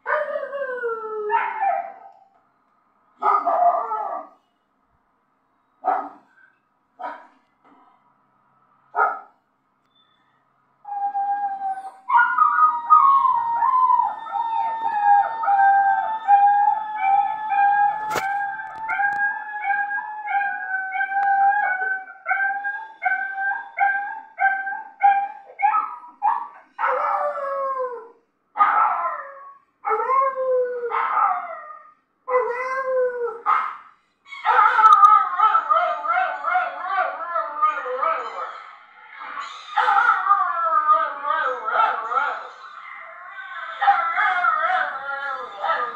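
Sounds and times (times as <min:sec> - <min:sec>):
dog howling: 0:10.9 - 0:25.9, 0:39.1 - 0:45.9.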